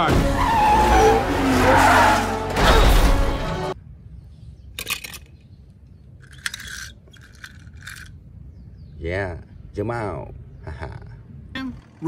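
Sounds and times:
animated race car crash with music: 0.0 - 3.8
toy car clicking on wooden board: 6.2 - 8.1.

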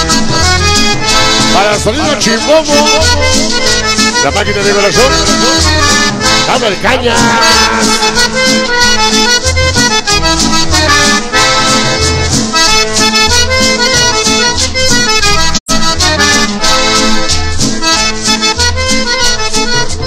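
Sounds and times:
accordion-led music over speakers: 0.0 - 20.0.

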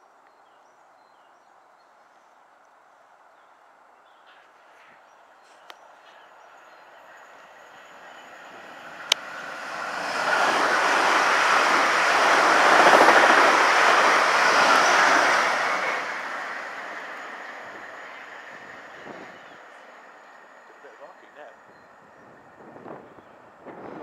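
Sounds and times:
electric train passing: 5.8 - 24.0.

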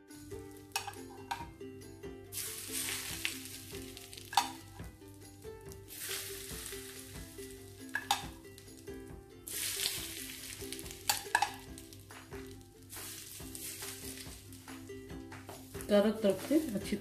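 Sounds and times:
faint background music: 0.0 - 17.0
hot oil sizzling: 0.4 - 1.5, 2.3 - 17.0
steel spoon clinking on pan: 0.7 - 1.5, 4.3 - 4.6, 7.9 - 8.3, 11.1 - 11.7.

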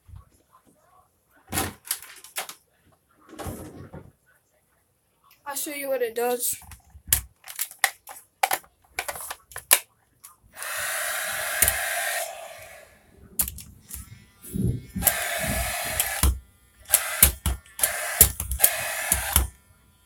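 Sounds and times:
sharp handling clicks: 6.6 - 10.8, 13.4 - 14.1, 15.0 - 19.5
gadget whirring hiss: 10.5 - 19.6.

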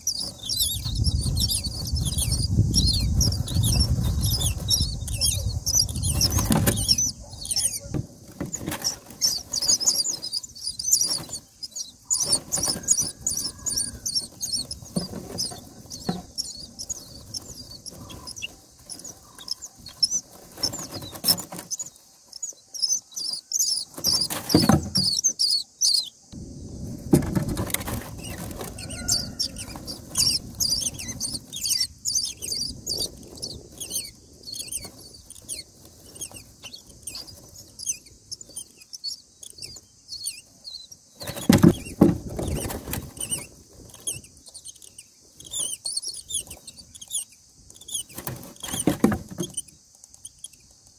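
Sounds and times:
nestlings squeaky begging calls: 0.0 - 26.2, 28.1 - 50.7
thumps at the nest: 6.1 - 7.0, 14.6 - 16.4, 24.0 - 25.2, 27.0 - 29.3, 41.2 - 43.2, 48.2 - 49.6.

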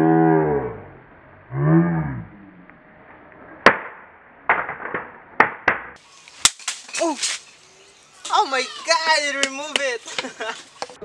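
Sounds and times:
person shouting: 8.3 - 10.0.

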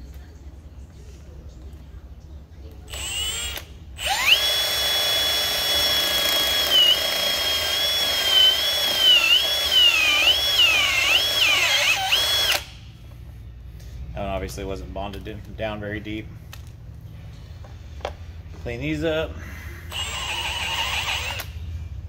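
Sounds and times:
cordless drill motor whine: 2.9 - 12.7, 19.9 - 21.6.

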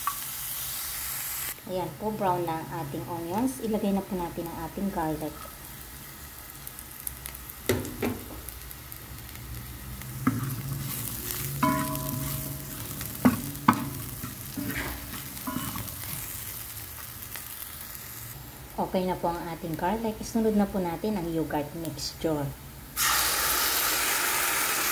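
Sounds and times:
garlic and onion sizzling: 0.0 - 24.9
spatula scraping and knocking pan: 10.2 - 16.7.

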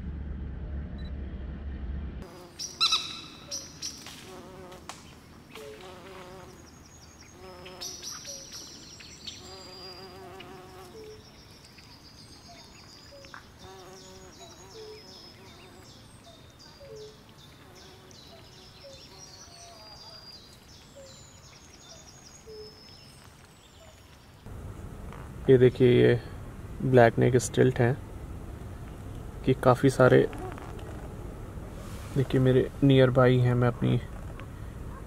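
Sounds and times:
birds chirping: 2.2 - 35.0
buzzy bird calls: 2.3 - 24.0
car cabin rumble: 24.5 - 32.3.

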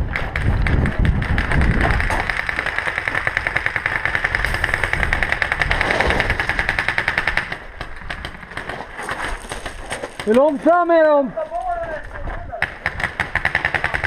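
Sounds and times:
paintball marker firing: 0.1 - 8.8, 12.6 - 14.0.

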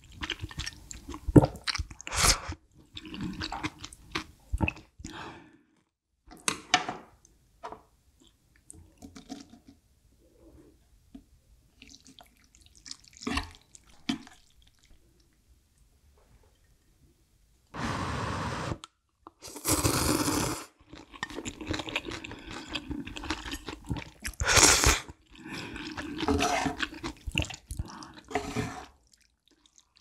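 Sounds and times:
person sipping broth: 19.4 - 20.7.

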